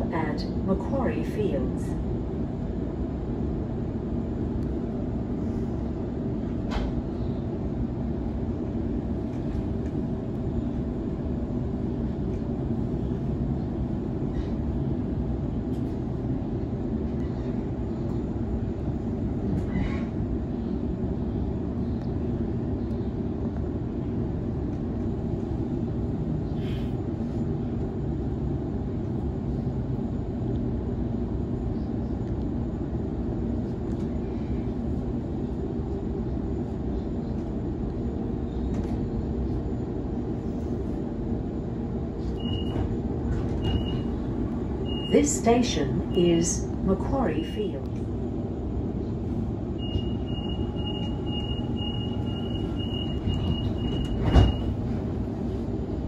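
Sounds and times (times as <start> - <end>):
electric train rumble: 0.0 - 56.0.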